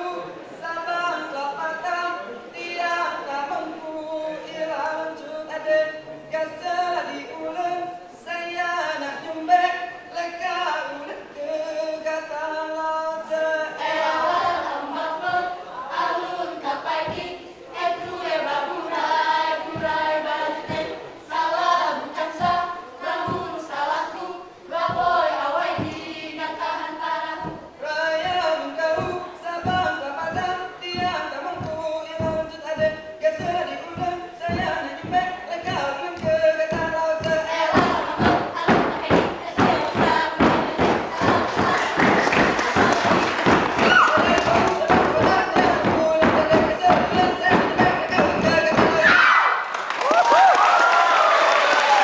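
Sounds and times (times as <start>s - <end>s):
group singing in unison: 0.0s - 49.7s
body percussion hits: 17.0s - 17.3s, 19.7s - 21.0s, 22.1s - 24.2s, 24.8s - 26.4s, 27.3s - 49.2s.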